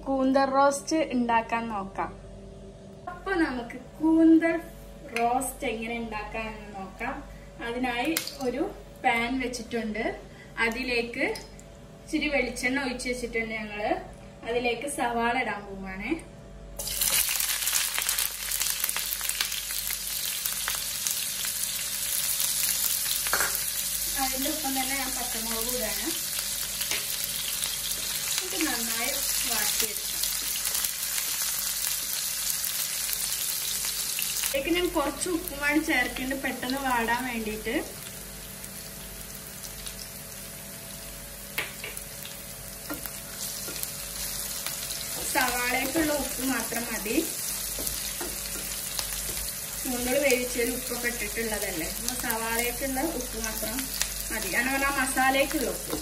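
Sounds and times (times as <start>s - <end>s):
onions sizzling in hot oil: 16.8s - 56.0s.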